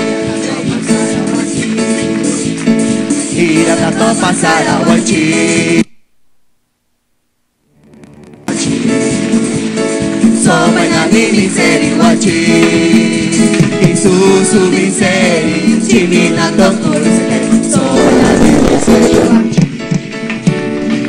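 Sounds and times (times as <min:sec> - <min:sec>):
voices singing worship song: 0:00.0 - 0:05.9, 0:08.6 - 0:19.9
instrumental accompaniment: 0:07.7 - 0:21.0.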